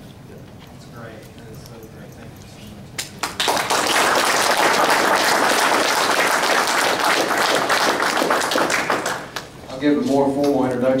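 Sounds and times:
audience applauding: 3.2 - 9.5.

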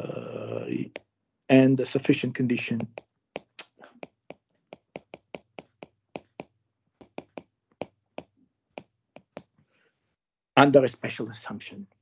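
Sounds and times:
stylus tapping on glass screen: 2.5 - 9.5.

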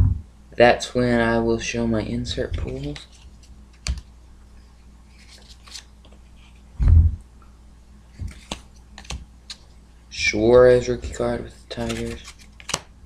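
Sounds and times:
cardboard cards flipped by hand: 2.6 - 4.1, 5.1 - 6.6, 8.1 - 9.7, 11.7 - 12.9.

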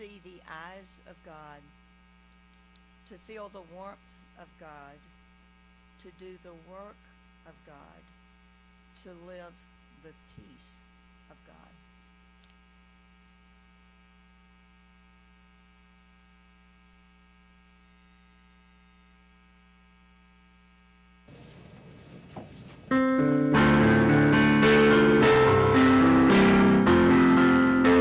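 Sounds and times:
electrical mains hum: 0.0 - 28.0
piano playing a hymn: 22.9 - 28.0.

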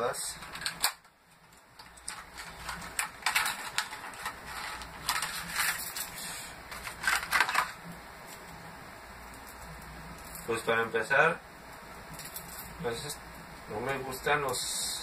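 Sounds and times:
plastic packaging crackling: 0.4 - 8.5.

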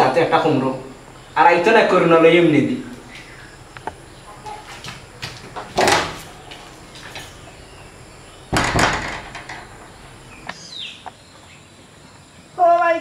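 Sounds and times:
door clattering bang: 4.4 - 10.5
door thump: 5.0 - 7.4, 8.4 - 10.5
door squeak: 5.6 - 10.5.

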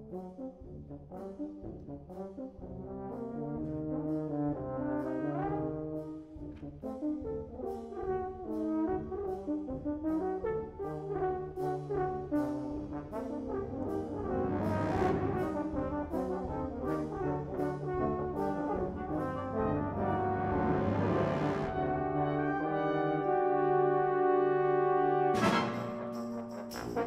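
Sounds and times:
brass band playing: 0.0 - 27.0.

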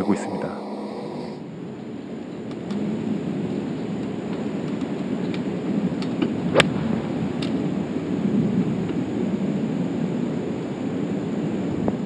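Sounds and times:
low outdoor rumble: 0.0 - 12.0
golf club striking ball: 6.0 - 7.6.

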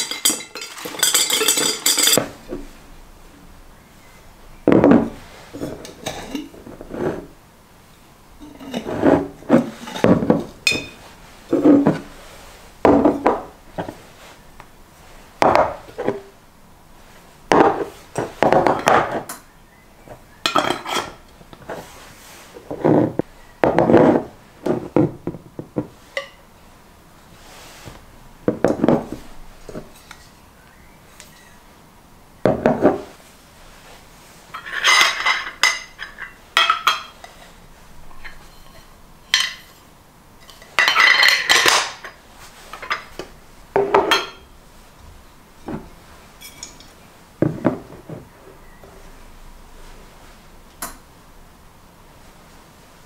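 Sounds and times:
screw-top lids scraping: 8.4 - 12.2
glass jars knocking on wood: 12.9 - 13.5.

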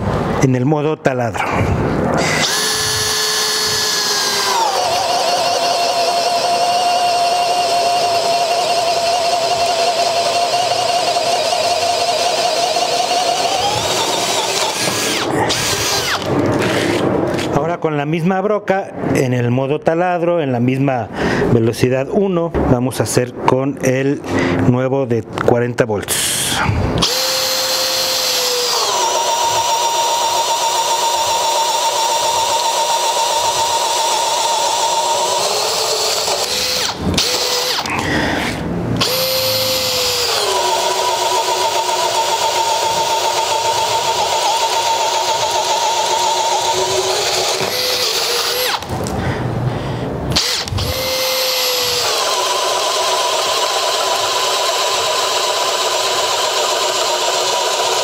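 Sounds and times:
drill motor spinning: 2.2 - 17.5, 27.0 - 49.1, 50.3 - 58.0.

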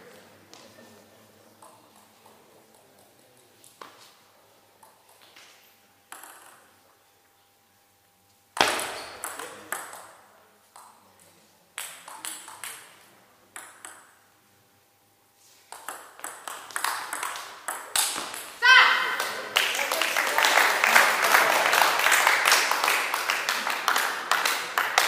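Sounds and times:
ball bouncing on table: 6.1 - 6.6, 8.6 - 10.2, 13.6 - 14.2, 15.7 - 18.5
table tennis ball hits: 6.1 - 6.7, 8.6 - 11.0, 11.8 - 14.2, 15.7 - 19.4.

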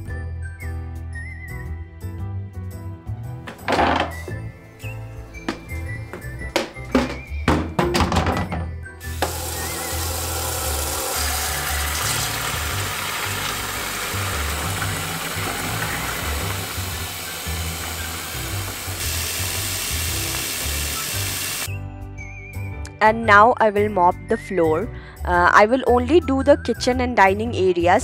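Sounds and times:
floor cleaner being poured: 9.0 - 21.7
tap water running into bucket: 9.0 - 21.7.

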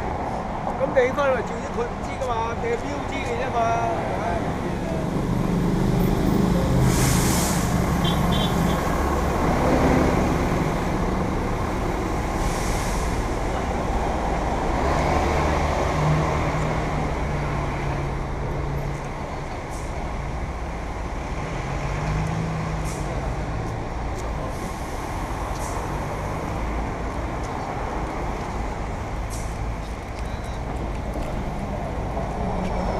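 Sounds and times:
road traffic rumble: 0.0 - 32.9
vehicle brake hiss: 6.8 - 7.8.

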